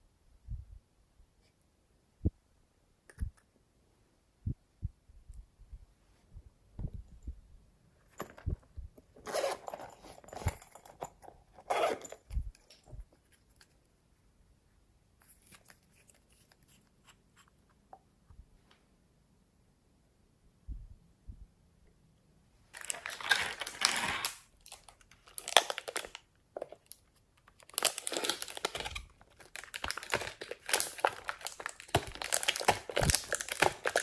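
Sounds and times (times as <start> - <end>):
zipper rasping open: 9.2 - 11.0, 11.6 - 12.5.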